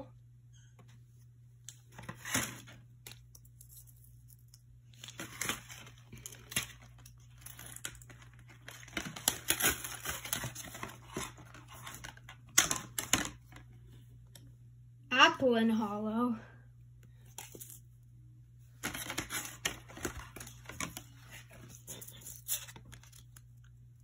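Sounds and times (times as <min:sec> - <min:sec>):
trading cards rustling: 0:01.8 - 0:13.8, 0:17.2 - 0:17.9, 0:18.7 - 0:23.9
packaging crinkling: 0:04.9 - 0:13.3, 0:18.8 - 0:23.8.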